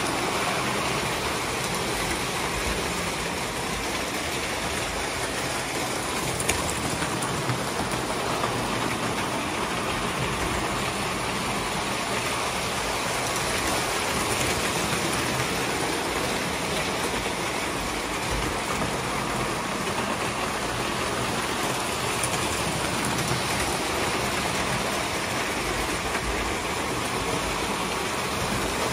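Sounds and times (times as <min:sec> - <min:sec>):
toy train wheels whirring on track: 0:00.0 - 0:28.9.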